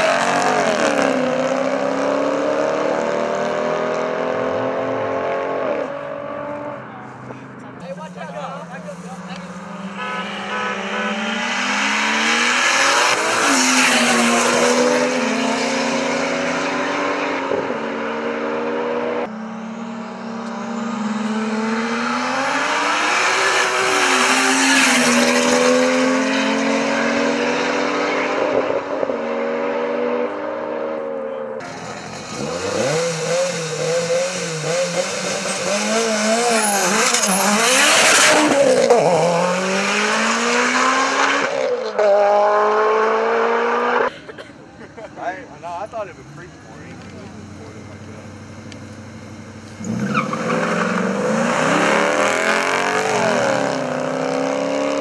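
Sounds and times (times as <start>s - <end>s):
cars accelerating at full throttle: 0.0s - 55.0s.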